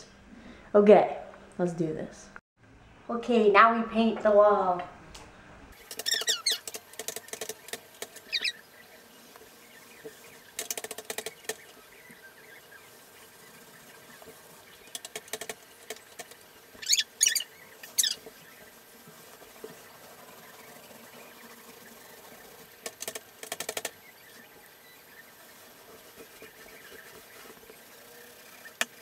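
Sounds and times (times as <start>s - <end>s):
squeaky paint roller sweeps: 5.8s - 6.6s, 16.7s - 22.8s, 24.1s - 29.0s
paint roller crackling: 5.8s - 29.0s.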